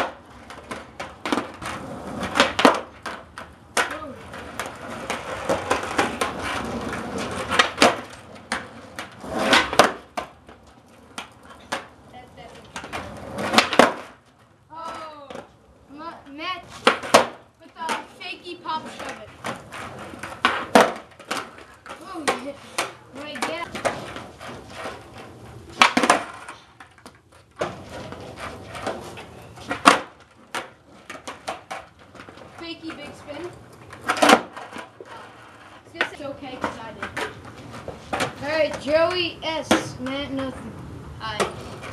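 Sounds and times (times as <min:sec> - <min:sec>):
skateboard tail pop: 0:00.0 - 0:03.2, 0:07.4 - 0:10.3, 0:12.8 - 0:14.2, 0:16.8 - 0:18.0, 0:20.2 - 0:24.3, 0:25.8 - 0:27.8, 0:29.7 - 0:32.3, 0:34.0 - 0:34.8
skateboard clacking: 0:00.0 - 0:41.9
skateboard wheels rolling on concrete: 0:00.0 - 0:41.9.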